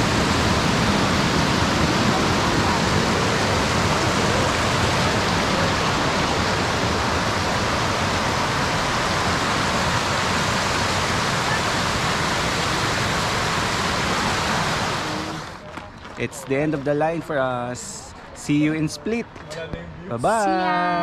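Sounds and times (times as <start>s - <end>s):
waterfall rushing: 0.0s - 15.6s.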